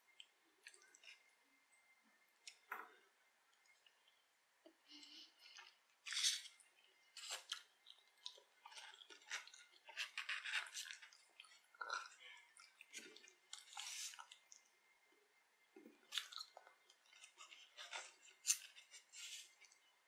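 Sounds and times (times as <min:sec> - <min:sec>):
close-miked chewing: 0:04.8 - 0:14.8, 0:15.8 - 0:20.0.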